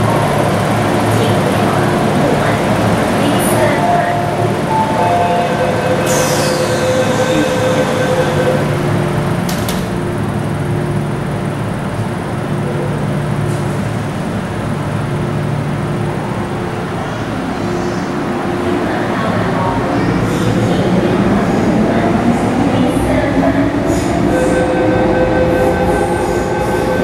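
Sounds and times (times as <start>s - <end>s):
train equipment humming: 0.0s - 27.0s
train doors sliding shut: 6.0s - 7.5s, 9.4s - 10.1s
door clunk: 9.5s - 10.0s.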